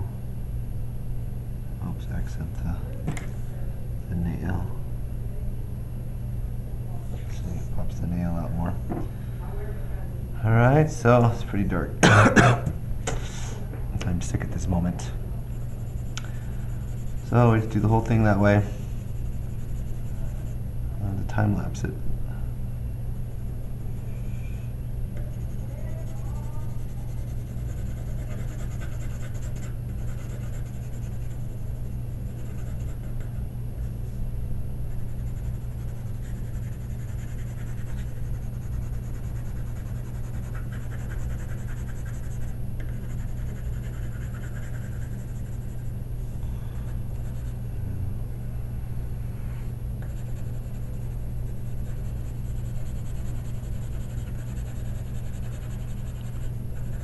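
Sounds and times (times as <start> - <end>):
low electrical hum: 0.0 - 57.0
pencil scratching on paper: 15.7 - 20.6, 25.3 - 33.3, 35.1 - 45.8, 50.0 - 57.0.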